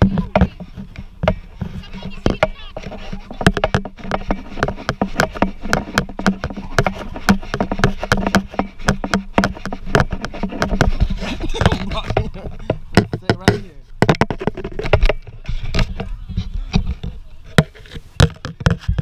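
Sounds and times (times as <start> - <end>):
faint voices: 0.0 - 3.8, 15.3 - 19.0
camera knocks and bumps: 0.0 - 19.0.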